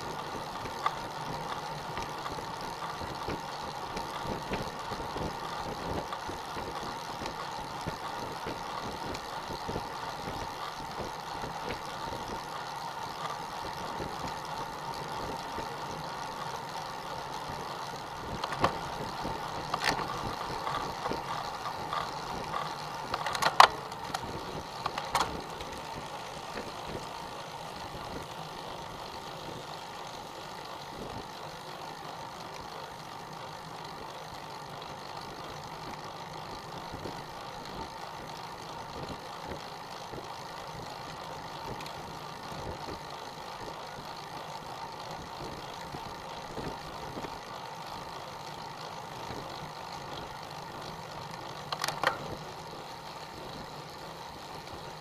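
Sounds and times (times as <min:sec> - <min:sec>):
bike rolling on asphalt: 0:00.0 - 0:55.0
sharp clicks: 0:51.6 - 0:52.4.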